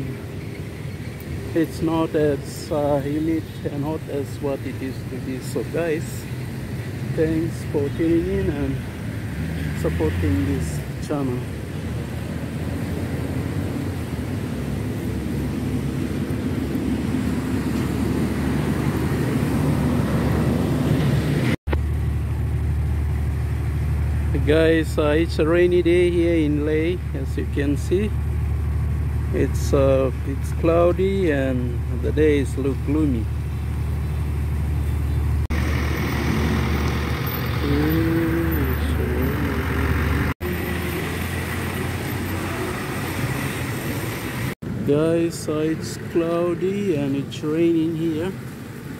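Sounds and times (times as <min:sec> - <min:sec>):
road traffic rumble: 0:00.0 - 0:48.9
person speaking: 0:29.4 - 0:33.4, 0:37.6 - 0:40.0, 0:44.9 - 0:48.4.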